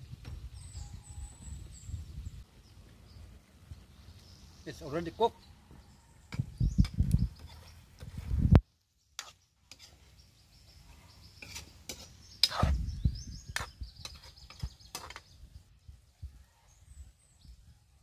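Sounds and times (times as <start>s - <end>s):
metal ladle scraping wok: 7.4s - 8.2s, 9.2s - 10.2s, 11.3s - 12.8s, 13.6s - 15.3s.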